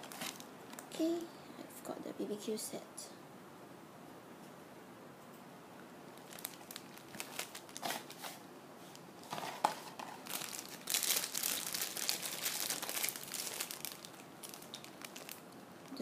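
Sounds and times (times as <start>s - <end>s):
plastic bags crinkling: 0.0s - 1.2s, 6.2s - 16.0s.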